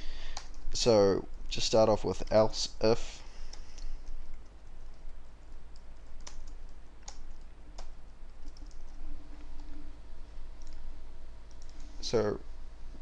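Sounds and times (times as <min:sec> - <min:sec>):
typing on computer keyboard: 0:03.5 - 0:09.0, 0:10.6 - 0:10.8, 0:11.5 - 0:11.8.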